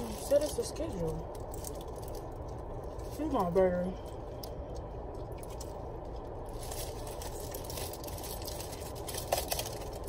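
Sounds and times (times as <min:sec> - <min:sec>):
foil wrapper crinkling: 0:00.0 - 0:04.6, 0:05.4 - 0:10.0
low hum: 0:00.0 - 0:10.0.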